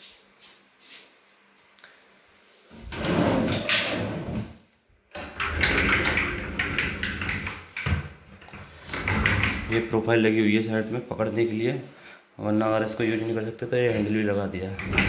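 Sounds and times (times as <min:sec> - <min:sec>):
sliding cupboard door rolling: 0:02.7 - 0:10.0, 0:14.7 - 0:15.0.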